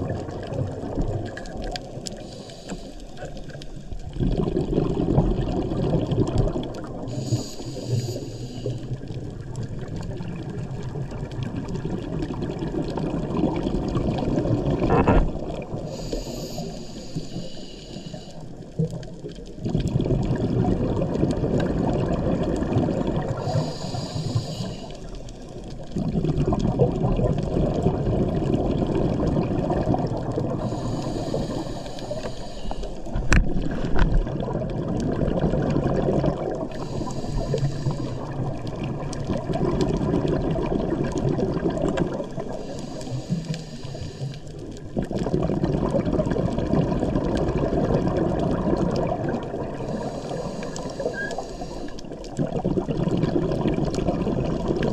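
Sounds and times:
exhaled bubbles rushing: 0.0s - 2.3s, 3.4s - 7.5s, 8.8s - 16.0s, 18.7s - 23.7s, 24.9s - 31.3s, 33.0s - 42.8s, 44.5s - 54.9s
regulator inhale hiss: 2.1s - 3.6s, 7.0s - 9.1s, 15.8s - 18.8s, 23.2s - 25.5s, 30.6s - 33.3s, 36.7s - 38.5s, 42.3s - 44.7s, 49.7s - 52.3s.

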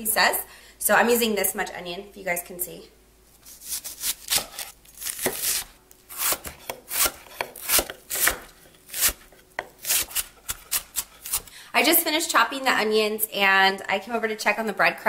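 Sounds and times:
knife chopping on wooden board: 4.3s - 11.5s.

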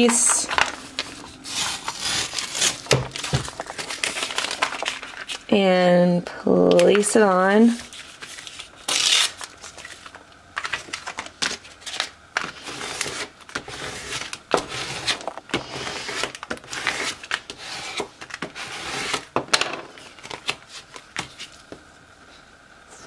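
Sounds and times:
scraper scratching on tape: 1.4s - 2.9s, 12.5s - 19.3s.

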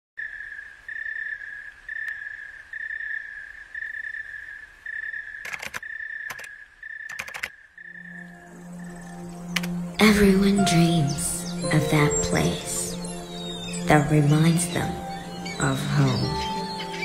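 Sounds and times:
cricket chirping: 0.2s - 10.0s
laptop keyboard keystrokes: 5.4s - 6.5s, 7.1s - 7.5s.

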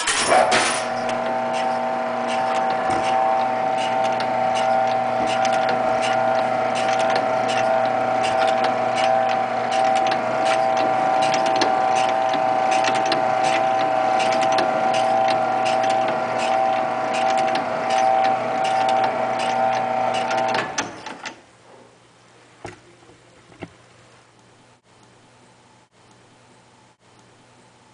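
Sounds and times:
motor whine: 0.6s - 20.9s
clicking of moving parts: 3.8s - 21.4s.

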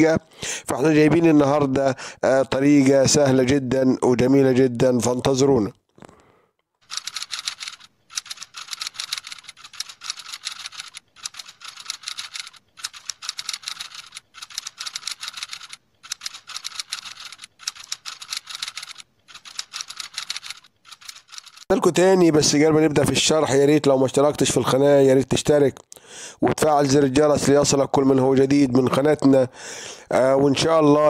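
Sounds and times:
keyboard typing clicks: 6.9s - 21.7s.

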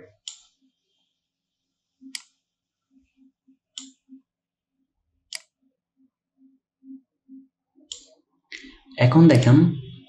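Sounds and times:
computer mouse clicks: 0.2s - 0.6s, 2.1s - 2.4s, 3.7s - 4.0s, 5.3s - 5.6s, 7.9s - 8.7s.

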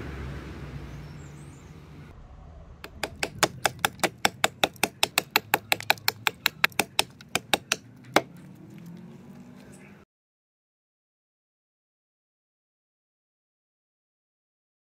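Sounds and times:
hatchet chopping wood: 2.8s - 8.4s.

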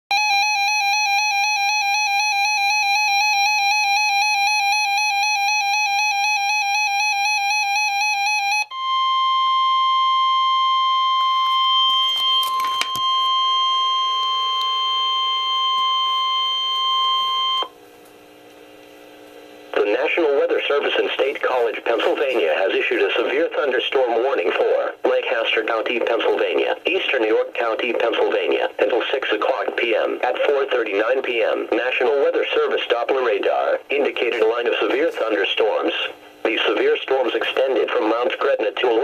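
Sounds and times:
steady warning alarm tone: 0.1s - 17.7s
warbling electronic alarm: 0.1s - 17.7s.

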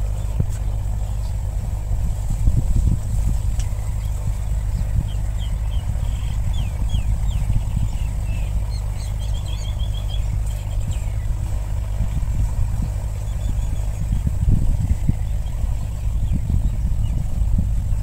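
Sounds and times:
small birds chirping: 0.0s - 1.9s, 3.4s - 17.4s
low engine rumble: 0.0s - 18.0s.

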